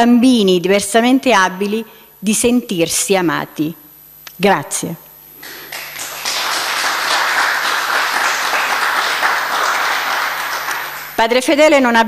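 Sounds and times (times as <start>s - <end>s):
audience applauding: 5.4s - 11.2s.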